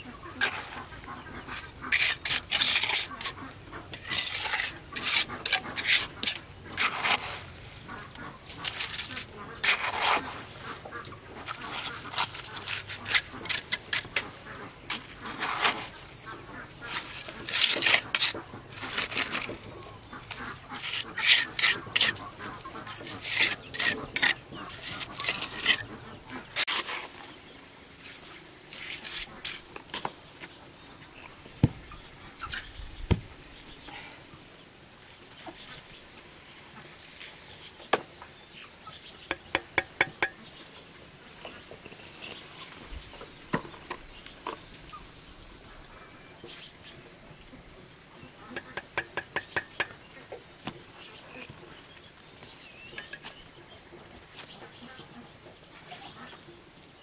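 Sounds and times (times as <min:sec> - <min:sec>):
trowel scraping bricks and mortar: 0:00.3 - 0:27.4, 0:28.0 - 0:30.2
trowel tapping bricks: 0:39.3 - 0:40.4, 0:48.5 - 0:50.0.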